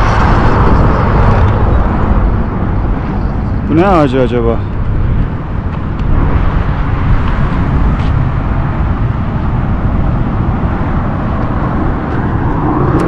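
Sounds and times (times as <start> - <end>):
road traffic rushing: 0.0 - 13.0
vehicle passing: 0.0 - 13.0.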